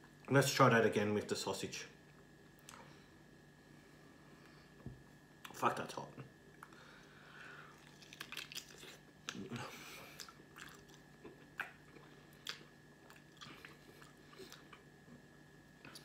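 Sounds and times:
person chewing with mouth smacks: 0:07.7 - 0:14.9.

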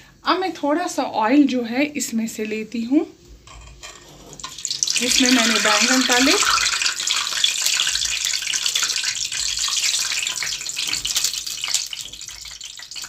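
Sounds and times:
hot oil sizzling in a pot: 0:03.5 - 0:13.0.

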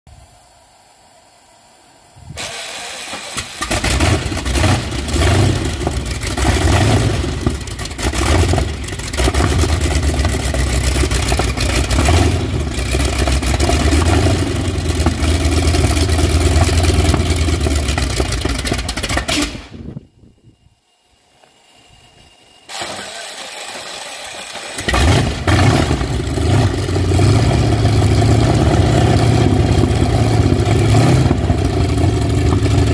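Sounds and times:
radial engine starting and running: 0:00.1 - 0:32.9.

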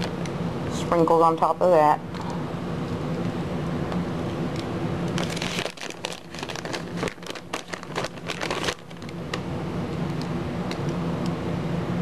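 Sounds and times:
plastic bag crinkling: 0:05.1 - 0:09.2.

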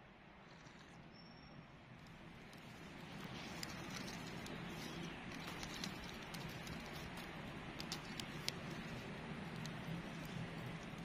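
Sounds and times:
campfire crackling: 0:02.0 - 0:11.0.

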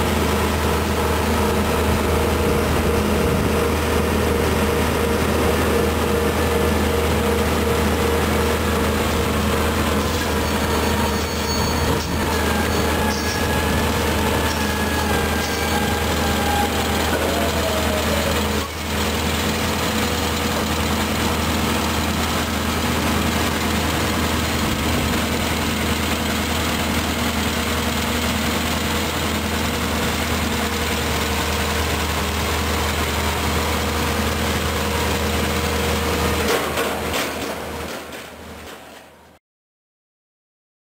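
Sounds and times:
heavy machinery diesel drone: 0:00.0 - 0:38.8
held tone: 0:10.3 - 0:16.4.

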